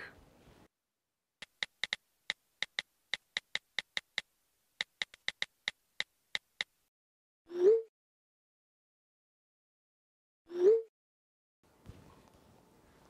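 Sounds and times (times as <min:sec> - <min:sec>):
phone keyboard taps: 0:04.8 - 0:06.7.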